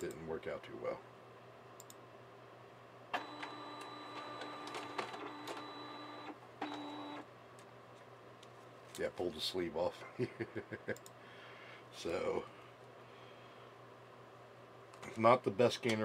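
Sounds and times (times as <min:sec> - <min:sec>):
scanner feed motor humming: 0:03.2 - 0:07.3.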